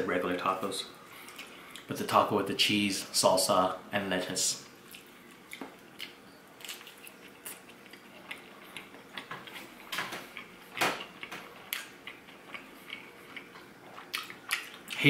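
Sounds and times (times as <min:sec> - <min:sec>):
close-up chewing: 0:04.8 - 0:15.0.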